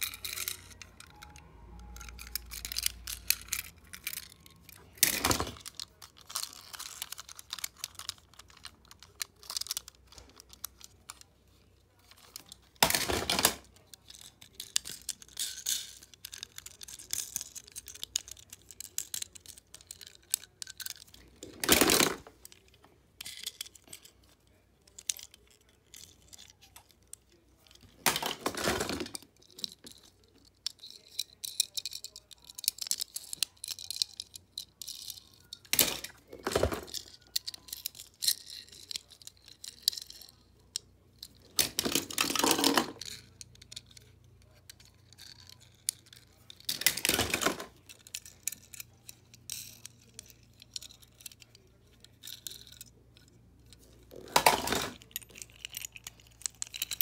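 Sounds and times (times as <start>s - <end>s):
toy cars clattering: 0.0s - 57.0s.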